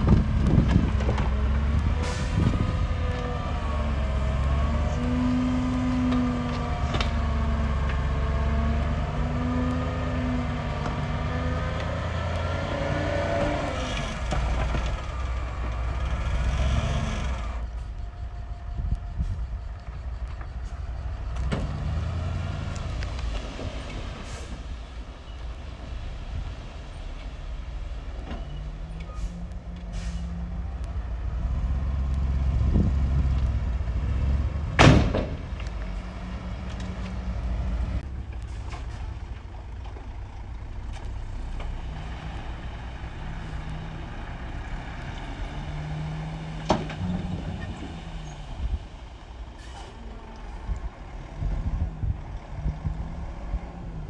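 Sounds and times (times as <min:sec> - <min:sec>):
truck engines revving: 0:00.0 - 0:54.0.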